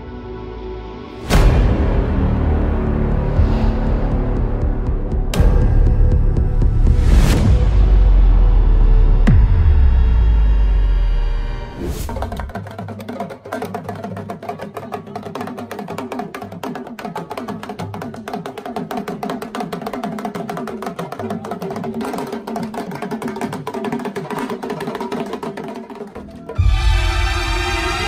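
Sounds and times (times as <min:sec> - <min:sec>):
fast percussion music: 0:12.1 - 0:27.1.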